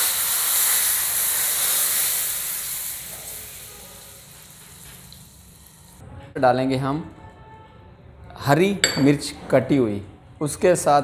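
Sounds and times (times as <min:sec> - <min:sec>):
hot oil sizzling: 0:00.0 - 0:06.0.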